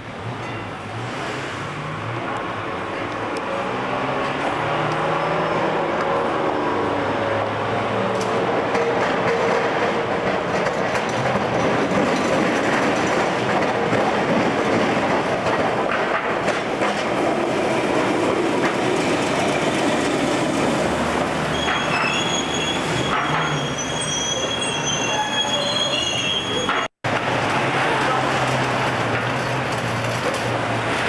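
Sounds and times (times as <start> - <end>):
tram wheels rumbling on rails: 0.0 - 31.0
high-pitched wheel squeal: 20.8 - 26.9.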